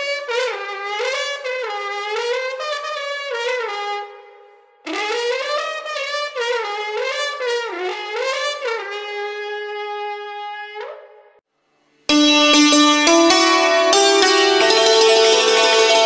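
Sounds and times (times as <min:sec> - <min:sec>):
hammered dulcimer music: 0:12.1 - 0:16.0
long wooden horns sounding: 0:12.1 - 0:16.0.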